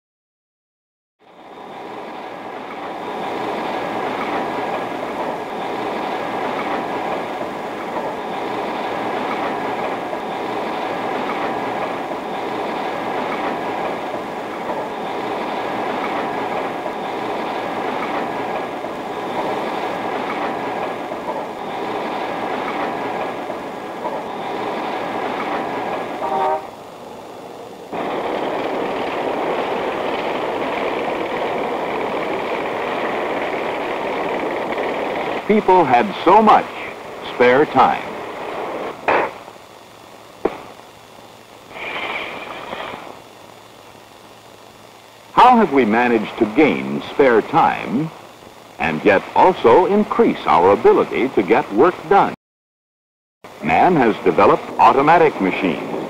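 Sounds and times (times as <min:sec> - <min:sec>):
machinery clattering: 0:27.9 - 0:36.6.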